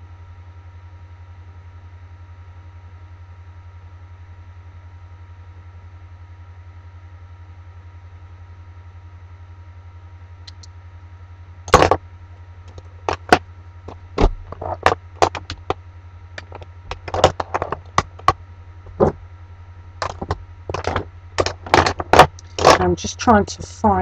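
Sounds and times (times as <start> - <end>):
low hum: 6.4 - 24.0
makeup items clattering: 12.7 - 13.4, 14.2 - 15.8, 16.4 - 18.3, 18.9 - 19.2, 20.0 - 22.8.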